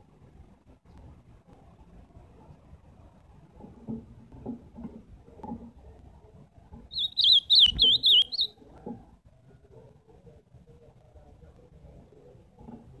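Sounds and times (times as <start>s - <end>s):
bird singing warbled phrase: 6.9s - 8.5s.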